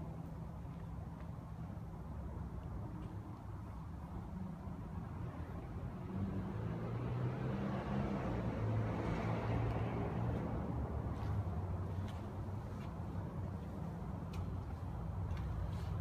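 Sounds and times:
passing vehicle engine drone: 0:05.1 - 0:12.0.

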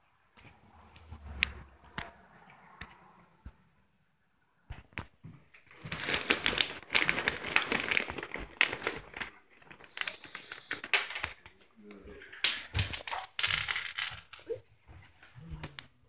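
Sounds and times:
plastic bag crinkling: 0:05.6 - 0:14.5.

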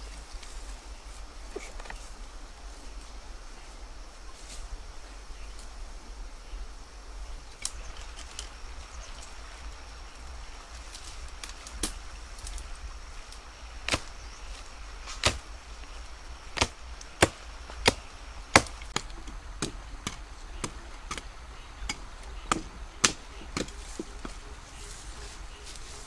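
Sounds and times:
blade chopping into wood: 0:13.9 - 0:14.1, 0:15.1 - 0:15.4, 0:16.6 - 0:21.3.

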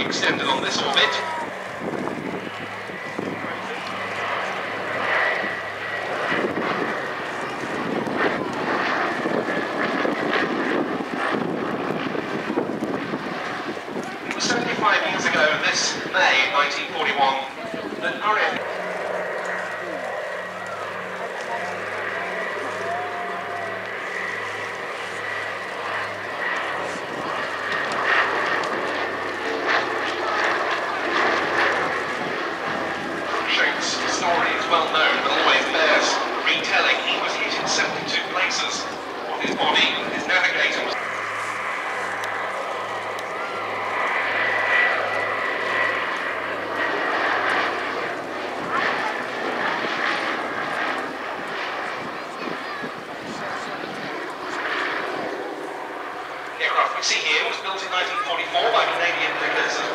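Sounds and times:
aircraft engines in flight: 0:00.0 - 0:59.9.

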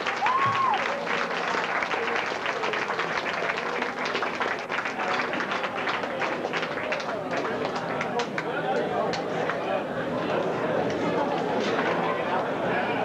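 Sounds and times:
audience applauding: 0:00.0 - 0:09.7
voices in crowd: 0:00.0 - 0:13.0.

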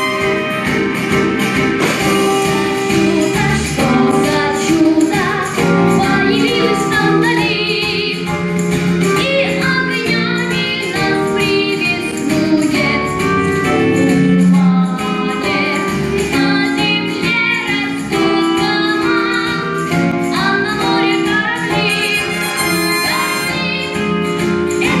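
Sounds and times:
child singing into microphone: 0:02.9 - 0:08.3
instrumental accompaniment: 0:11.1 - 0:16.6, 0:21.8 - 0:24.4.

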